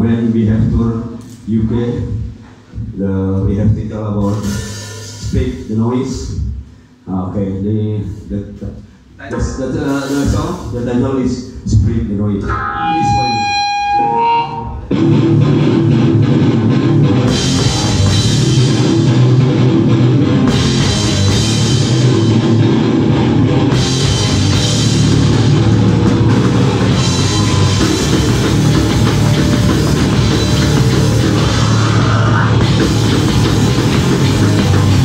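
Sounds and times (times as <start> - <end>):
drum kit: 3.6 - 6.8, 8.6 - 10.9, 14.8 - 35.0
bass guitar: 10.2 - 35.0
electric guitar: 12.4 - 35.0.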